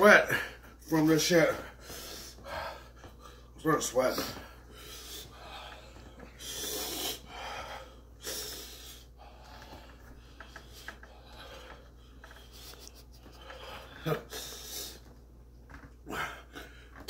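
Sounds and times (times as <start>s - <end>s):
man breathing hard through mouth: 4.6s - 12.4s.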